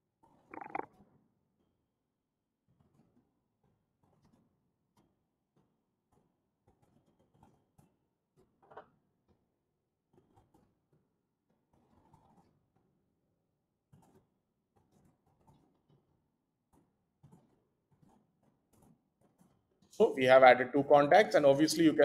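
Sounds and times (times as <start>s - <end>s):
keyboard typing clicks: 0.6s - 0.9s.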